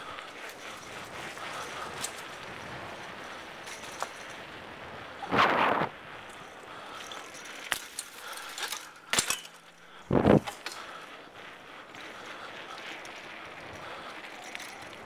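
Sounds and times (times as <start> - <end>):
bicycle rolling over pavement: 0.0 - 15.0
loud rough noises: 5.2 - 6.0.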